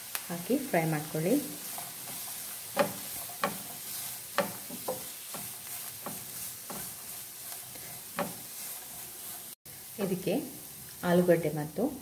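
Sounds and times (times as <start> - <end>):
vegetables sizzling: 0.0 - 12.0
wooden spatula scraping a pan: 0.8 - 9.6.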